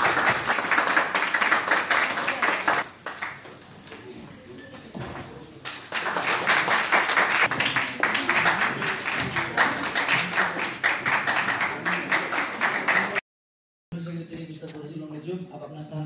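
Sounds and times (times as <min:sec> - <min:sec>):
audience clapping: 0:00.0 - 0:03.8, 0:05.6 - 0:13.2
voices in crowd: 0:07.5 - 0:13.2.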